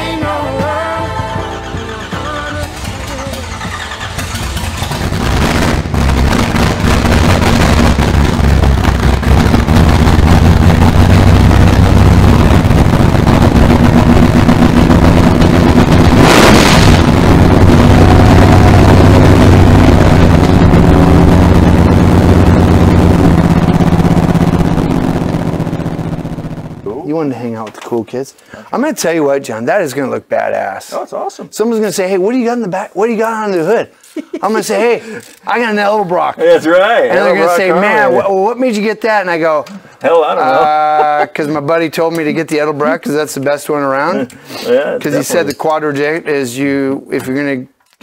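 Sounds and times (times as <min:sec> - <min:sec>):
engine revving: 0:02.0 - 0:26.8.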